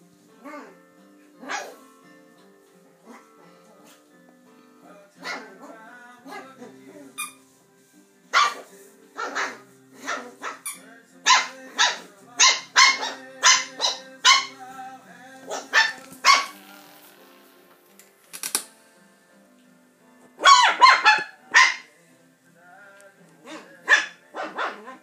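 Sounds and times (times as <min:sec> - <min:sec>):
puppy yapping: 0:01.4 - 0:01.8, 0:08.4 - 0:14.6, 0:15.5 - 0:16.6, 0:20.4 - 0:21.9, 0:23.5 - 0:25.0.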